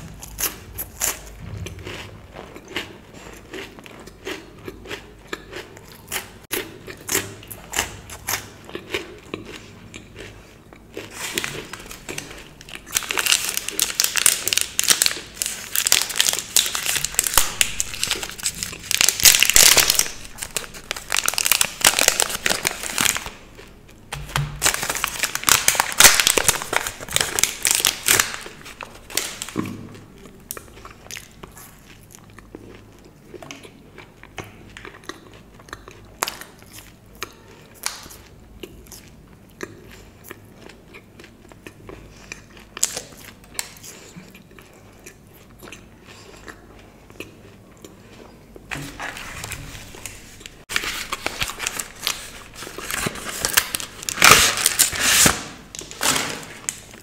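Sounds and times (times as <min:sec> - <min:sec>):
chewing chocolate: 0:00.4 - 0:17.1, 0:30.2 - 0:48.7
plastic wrapper crinkling: 0:11.1 - 0:29.6, 0:48.7 - 0:57.0
packaging rustling: 0:11.2 - 0:23.4, 0:24.3 - 0:29.6, 0:48.9 - 0:57.0.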